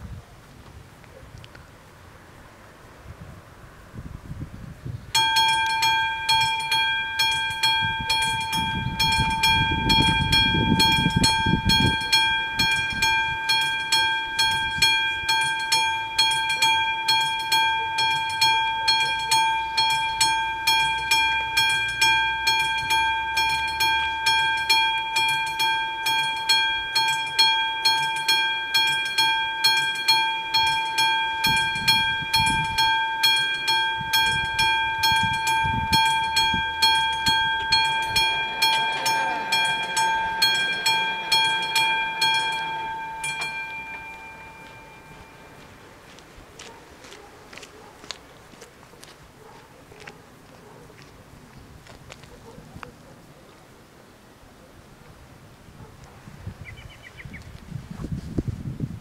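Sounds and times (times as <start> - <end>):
level crossing bells ringing: 5.2 - 47.9.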